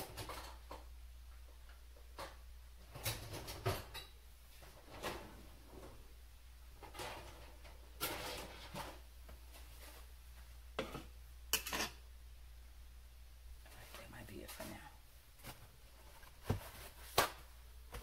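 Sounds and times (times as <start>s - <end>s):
dishes and utensils clattering: 0.0s - 0.8s, 2.2s - 4.2s, 10.8s - 12.0s.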